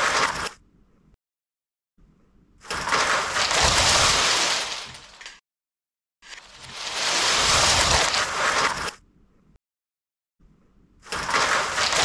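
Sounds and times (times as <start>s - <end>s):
plastic bricks clattering: 2.7s - 5.4s, 6.3s - 8.8s, 11.2s - 12.0s.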